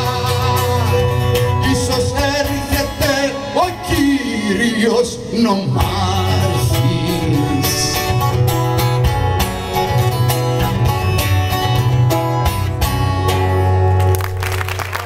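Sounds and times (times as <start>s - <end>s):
acoustic guitar strumming: 0.0s - 14.1s
applause: 14.0s - 15.0s.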